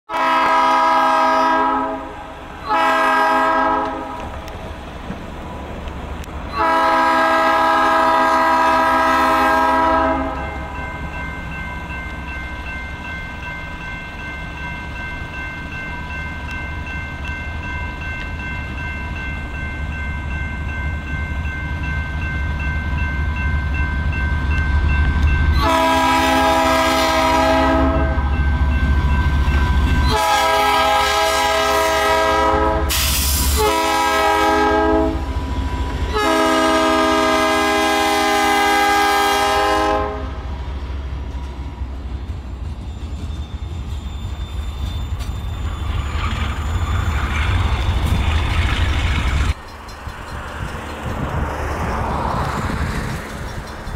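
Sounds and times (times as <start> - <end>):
locomotive air horn blasts: 0.1 - 4.2, 6.5 - 10.6, 25.6 - 28.4, 30.1 - 35.4, 36.1 - 40.5.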